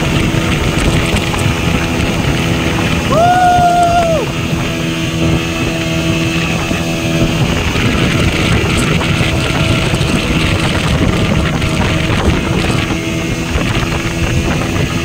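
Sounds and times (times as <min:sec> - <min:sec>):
motorboat engine running: 0:00.0 - 0:15.0
wake rushing: 0:00.0 - 0:15.0
wind buffeting microphone: 0:00.0 - 0:15.0
high-pitched yell: 0:03.1 - 0:04.3.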